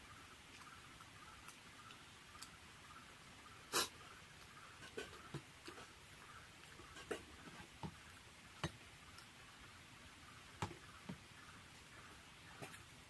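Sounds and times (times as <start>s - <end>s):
chewing clicks and smacks: 0.5s - 0.8s, 1.4s - 2.6s
fingers picking at a plate: 4.4s - 6.0s.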